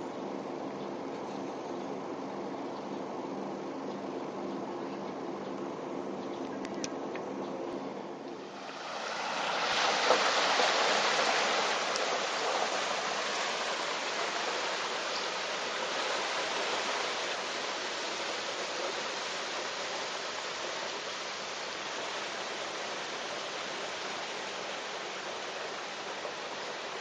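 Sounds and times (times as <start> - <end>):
car splashing through floodwater: 8.4 - 27.0.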